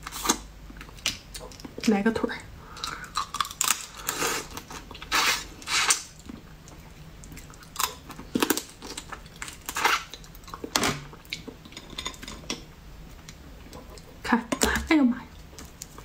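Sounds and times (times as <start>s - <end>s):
chewing with crunches: 2.8s - 11.8s.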